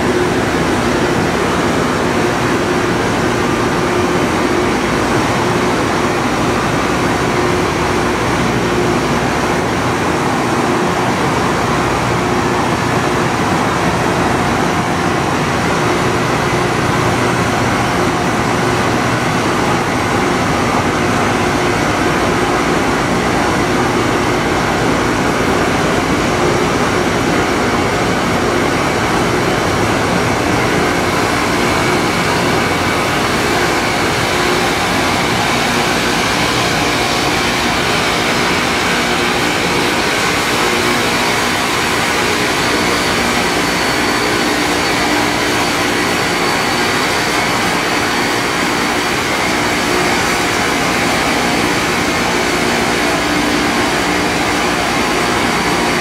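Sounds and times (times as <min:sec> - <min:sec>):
rail grinder grinding: 0:26.6 - 0:56.0.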